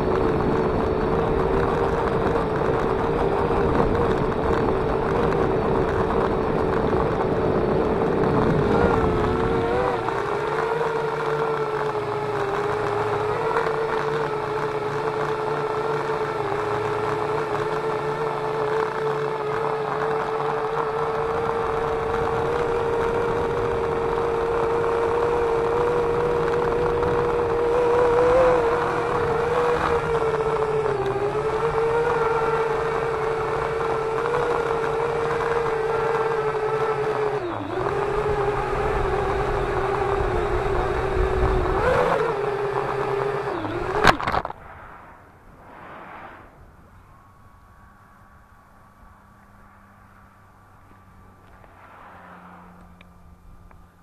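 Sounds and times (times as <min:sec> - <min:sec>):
drone propellers whining: 0:00.0 - 0:54.0
low rumble: 0:44.2 - 0:47.7.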